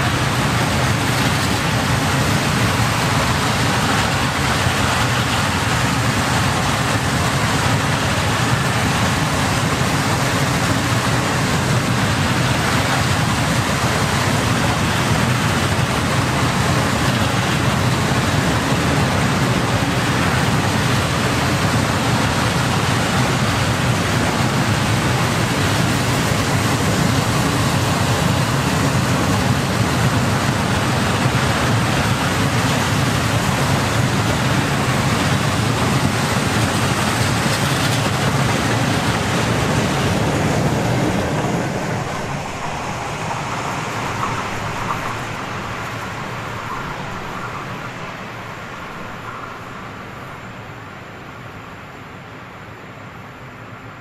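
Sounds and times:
freight train wheels on rails: 0.0 - 52.8.

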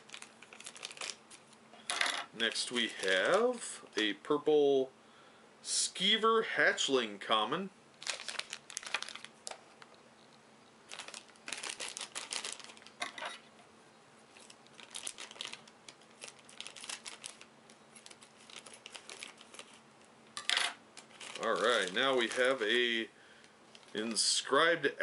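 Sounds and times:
plastic bag crinkling: 0.0 - 3.6, 8.0 - 10.0, 10.8 - 13.5, 14.3 - 23.0, 23.7 - 24.1.

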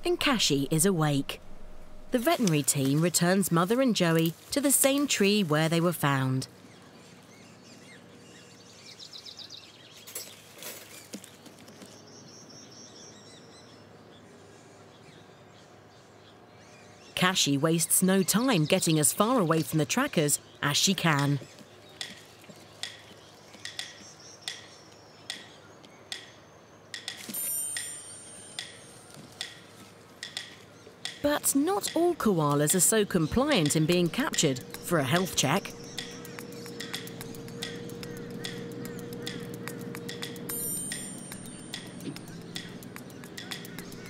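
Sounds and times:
quiet bush ambience: 0.0 - 44.0
high wavering animal call: 33.5 - 44.0.

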